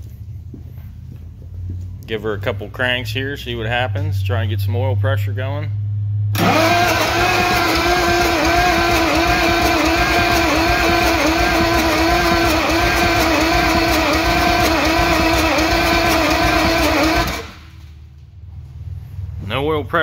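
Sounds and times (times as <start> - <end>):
starter cranking diesel engine: 6.3 - 17.8.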